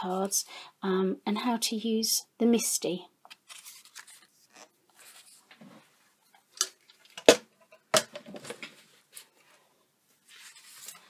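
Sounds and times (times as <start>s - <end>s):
paper rustling and scraping: 3.4s - 5.9s, 10.2s - 11.0s.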